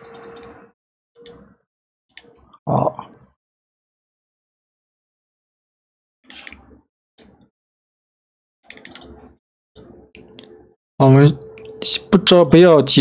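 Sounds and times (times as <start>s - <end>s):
mouse and keyboard clicking: 6.3s - 7.4s, 8.7s - 9.2s.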